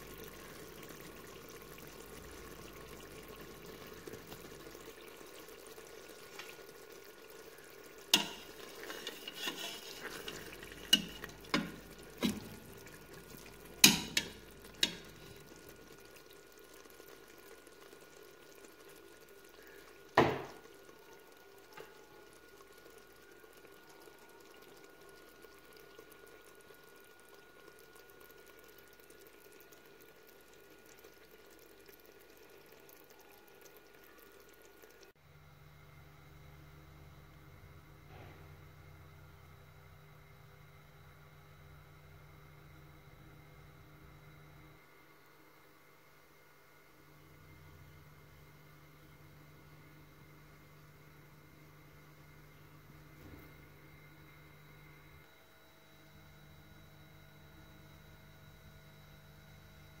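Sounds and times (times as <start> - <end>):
faint steady sizzle: 0.0 - 60.0
metal spatula knocking on pot: 13.8 - 15.1.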